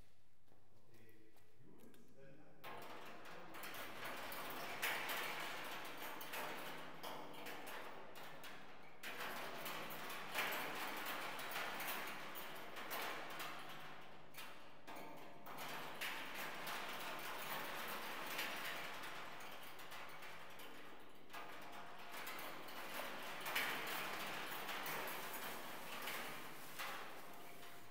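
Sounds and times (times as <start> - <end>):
spoons clinking against steel drum: 23.5 - 27.9.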